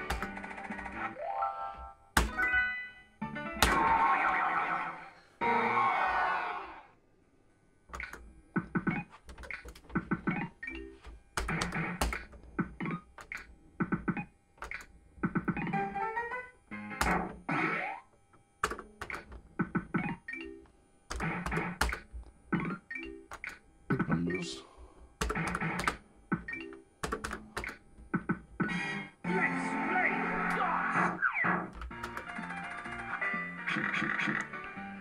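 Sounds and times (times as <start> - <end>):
sharp machine clicks: 14.6 - 14.9.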